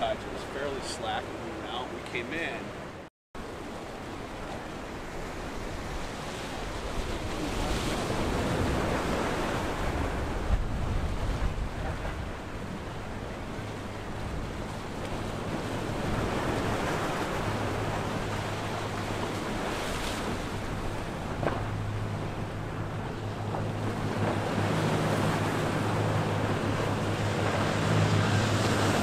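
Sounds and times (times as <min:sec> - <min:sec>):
yacht diesel engines droning: 0:00.0 - 0:03.8, 0:11.2 - 0:29.0
waves churning: 0:00.0 - 0:29.0
wind buffeting microphone: 0:05.1 - 0:29.0.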